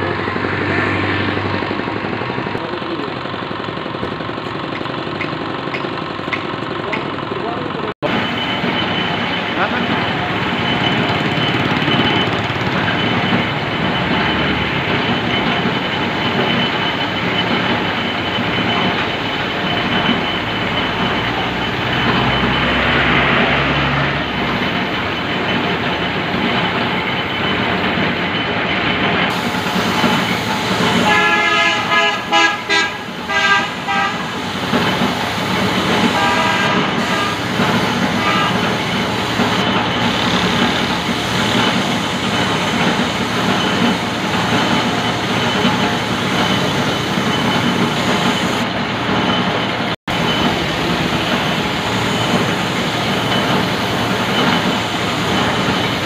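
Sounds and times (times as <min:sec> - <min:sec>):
paint spray gun hissing: 0:29.3 - 0:31.3
horn short toots: 0:30.9 - 0:34.4, 0:36.0 - 0:38.8.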